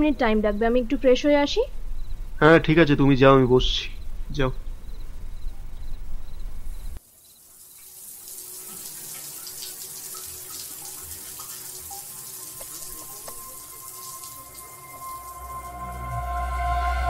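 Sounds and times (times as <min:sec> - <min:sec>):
water running and splashing: 0:07.0 - 0:16.4.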